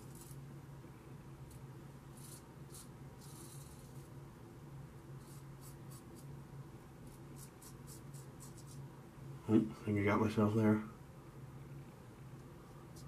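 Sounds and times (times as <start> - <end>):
razor scraping stubble: 5.2 - 6.3, 7.0 - 8.8.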